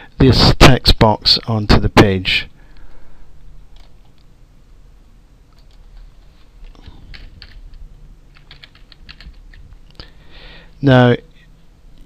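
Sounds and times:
typing on keyboard: 0:05.5 - 0:09.8.

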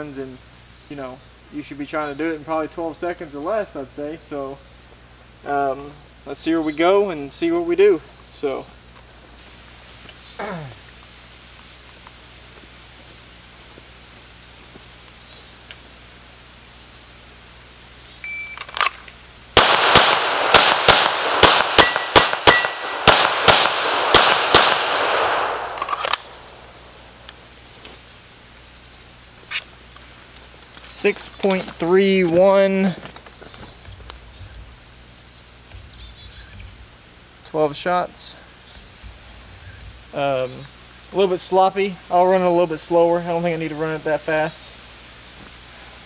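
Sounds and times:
pistol shots: 0:19.6 - 0:26.6.

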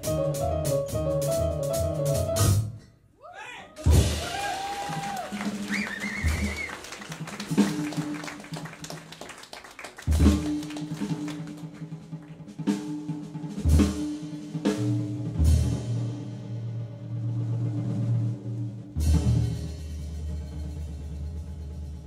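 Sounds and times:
jazz piano trio playing: 0:00.0 - 0:02.9
sharp drum accents: 0:03.8 - 0:08.7, 0:10.0 - 0:15.8.

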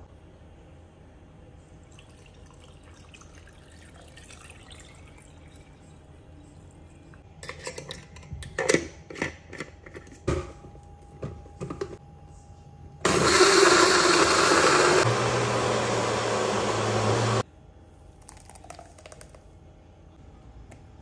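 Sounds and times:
water pouring into glass jar: 0:01.9 - 0:05.8.

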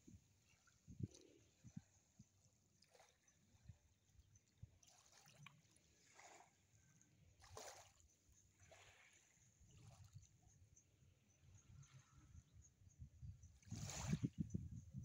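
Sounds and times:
wind rumble on microphone: 0:00.0 - 0:02.4, 0:11.4 - 0:15.0
small waves lapping on shore: 0:02.8 - 0:03.7, 0:04.8 - 0:10.3, 0:13.6 - 0:14.3.

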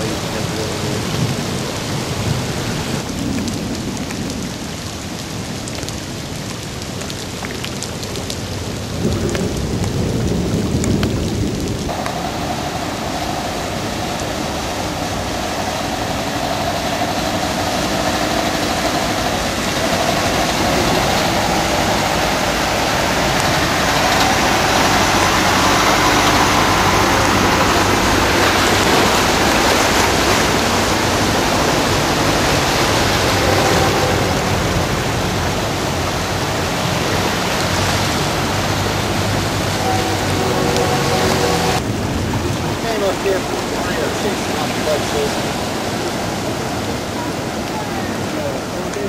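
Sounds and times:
heavy rain: 0:00.0 - 0:49.0
vehicles splashing through water: 0:00.0 - 0:49.0
engine hum: 0:11.7 - 0:48.3.

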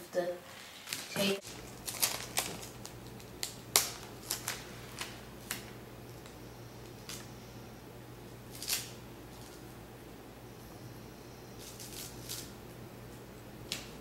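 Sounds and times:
tape crackling on foam: 0:00.6 - 0:07.3, 0:08.5 - 0:09.7, 0:11.6 - 0:14.0.

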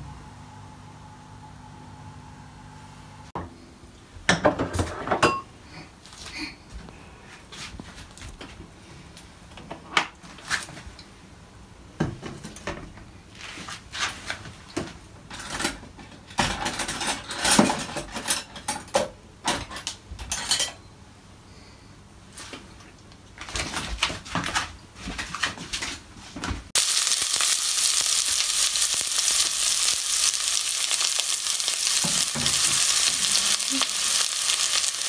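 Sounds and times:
dishes and utensils clinking: 0:04.3 - 0:05.5, 0:15.3 - 0:20.9.

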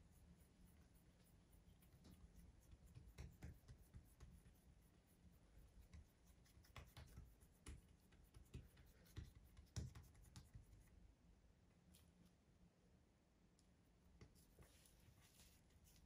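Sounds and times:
fingers patting dough: 0:01.7 - 0:10.9.

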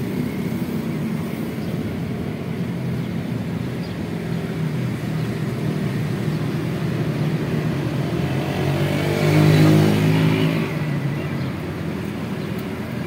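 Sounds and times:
vehicle engine passing: 0:07.4 - 0:11.2.

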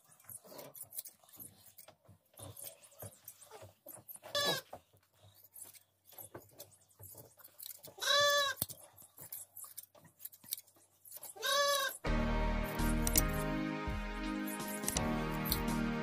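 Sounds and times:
scissors snipping fleece: 0:08.6 - 0:11.9, 0:12.7 - 0:13.4, 0:14.4 - 0:15.8.

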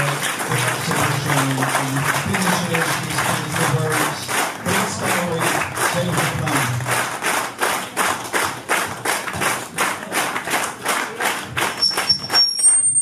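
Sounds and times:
audience clapping in unison: 0:00.0 - 0:13.0
high-pitched whistling tones: 0:11.8 - 0:13.0.

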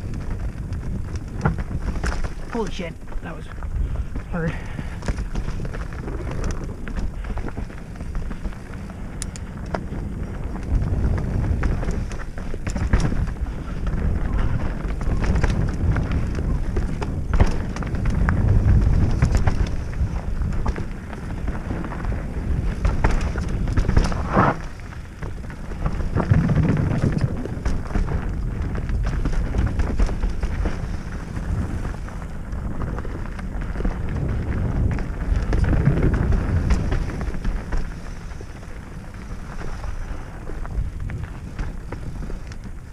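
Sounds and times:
bike rattling and knocking: 0:00.0 - 0:42.9
bike tyres rumbling over dirt: 0:00.0 - 0:42.9
wind buffeting microphone: 0:00.0 - 0:42.9.

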